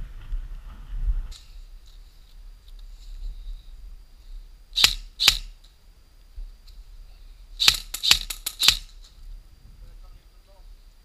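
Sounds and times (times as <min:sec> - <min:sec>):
airsoft rifle shots: 0:04.8 - 0:05.6, 0:07.6 - 0:09.0.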